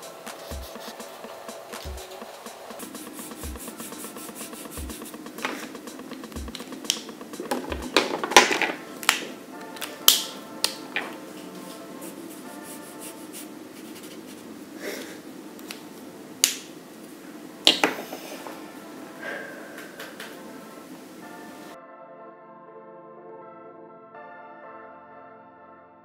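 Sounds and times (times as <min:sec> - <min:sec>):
marker scratching on paper: 0:00.0 - 0:08.0, 0:11.3 - 0:14.5
soft background music: 0:00.0 - 0:14.4, 0:15.2 - 0:26.0.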